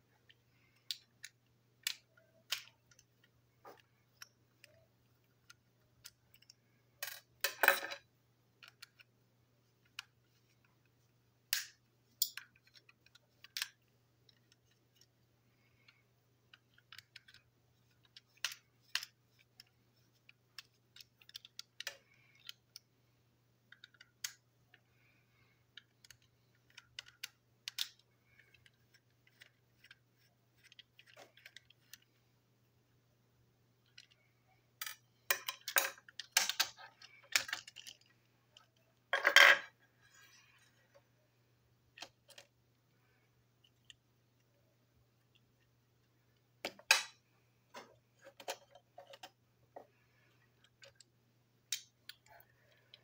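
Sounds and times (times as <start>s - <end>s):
toy parts clicking and tapping: 0.2s - 9.1s, 11.5s - 22.9s, 23.6s - 32.1s, 33.8s - 34.2s, 34.8s - 39.8s, 46.6s - 53.0s
plastic parts clattering: 34.8s - 41.0s.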